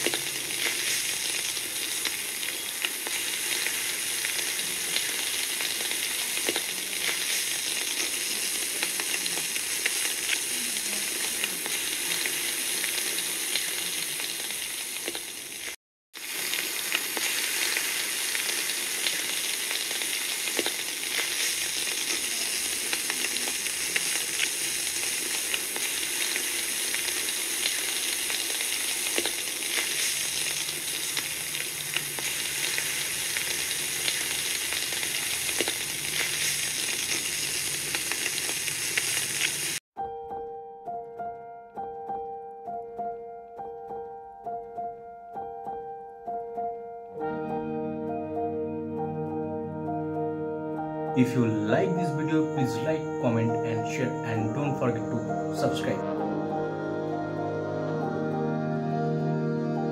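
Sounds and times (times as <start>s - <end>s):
meat sizzling on a charcoal grill: 0.0s - 39.8s.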